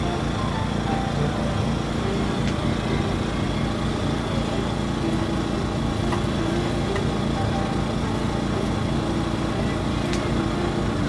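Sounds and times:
small engine humming: 0:00.0 - 0:11.0.

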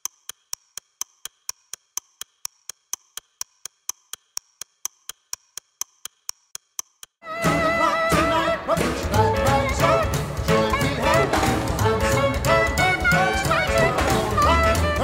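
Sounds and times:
clock-like ticking: 0:00.0 - 0:07.2
music: 0:07.2 - 0:15.0.

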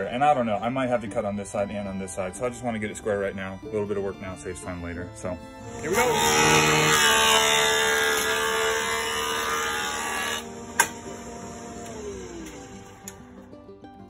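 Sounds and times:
jointer planing wood: 0:04.6 - 0:13.5
machine running: 0:05.6 - 0:13.5
sharp click: 0:10.8 - 0:11.0.

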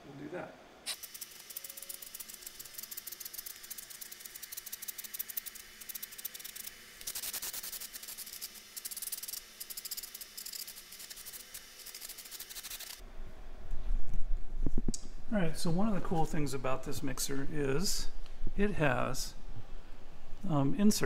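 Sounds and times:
aerosol spray hissing spurts: 0:00.9 - 0:13.0.

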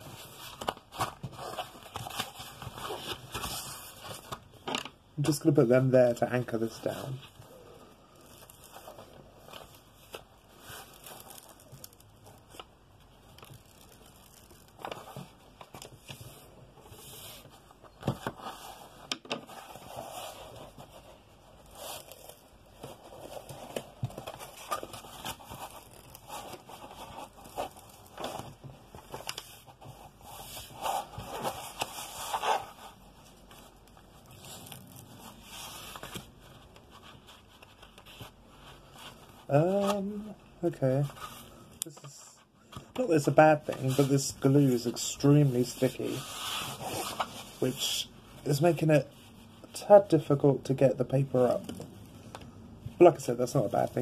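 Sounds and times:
canvas sheet crinkling: 0:06.6 - 0:18.9.

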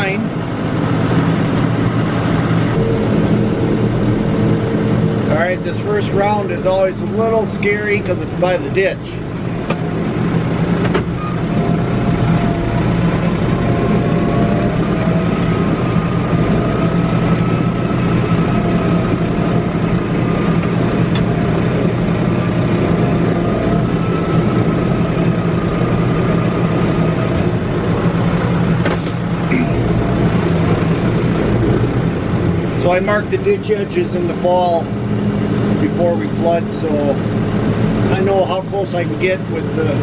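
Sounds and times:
faint wavering whine: 0:00.0 - 0:40.0
tractor engine under load: 0:00.0 - 0:40.0.

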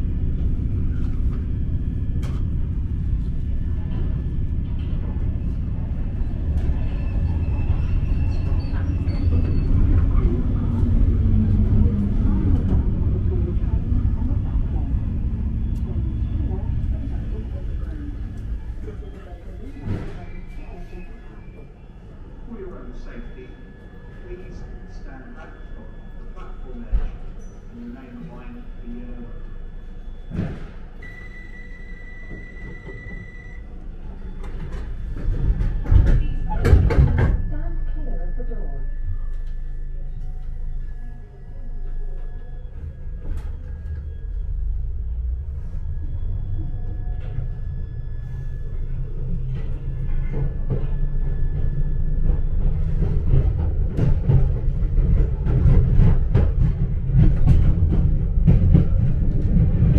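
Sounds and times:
low rumble of standing train: 0:00.0 - 0:59.9
high electronic door beep: 0:30.3 - 0:33.6
train wheels rumbling on track: 0:32.2 - 0:38.1, 0:39.2 - 0:59.9.

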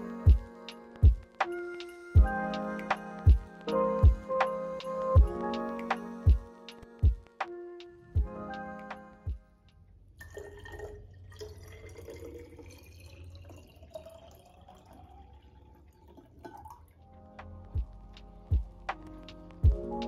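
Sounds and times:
water pouring into glass bottle: 0:10.2 - 0:17.0.

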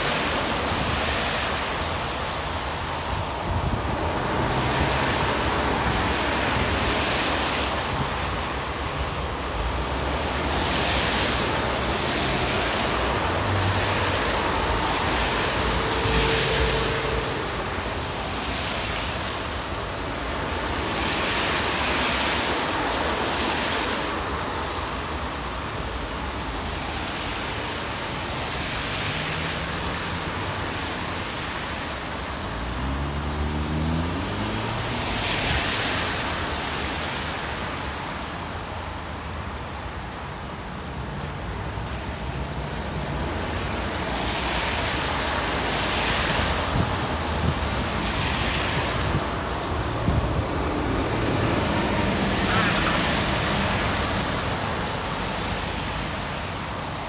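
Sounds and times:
road traffic passing: 0:00.0 - 0:57.0
vehicle engine pulling away: 0:32.8 - 0:34.9.

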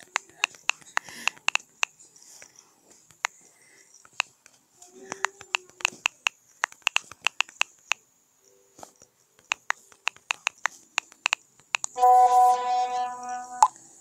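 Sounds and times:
phone keyboard clicks: 0:00.0 - 0:02.0, 0:05.1 - 0:08.0, 0:09.4 - 0:12.0
loud steady buzzing tone: 0:12.0 - 0:14.0.

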